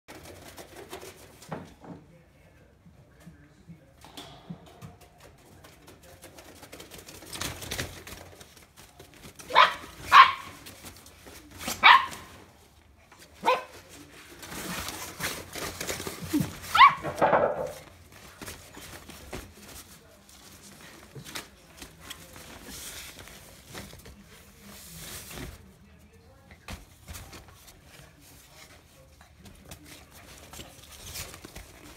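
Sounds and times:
rustling: 4.0s - 31.9s
dog barking: 9.5s - 10.6s, 11.8s - 12.3s, 13.4s - 13.8s, 16.7s - 17.2s.

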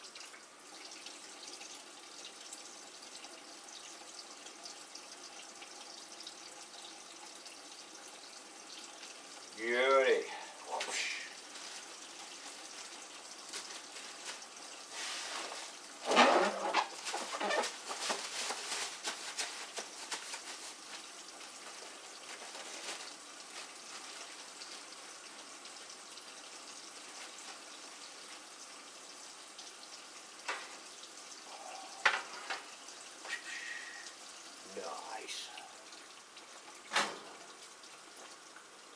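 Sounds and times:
rustling and clatter: 13.5s - 21.0s, 21.6s - 24.4s.

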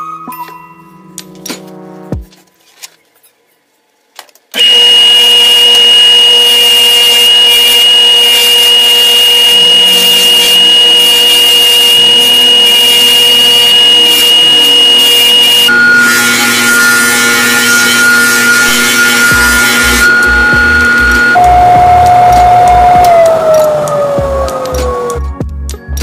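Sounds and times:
buffing machine whine and hiss: 4.6s - 25.2s.

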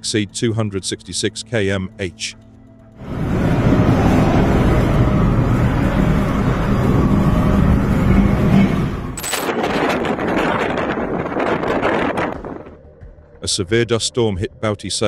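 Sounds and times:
wind blowing against microphone: 3.0s - 12.8s.

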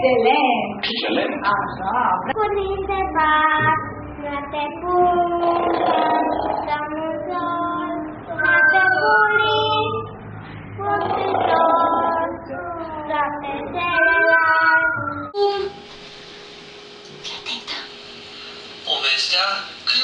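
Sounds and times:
children singing: 5.0s - 10.1s, 10.8s - 15.4s
woman singing: 10.8s - 15.8s.

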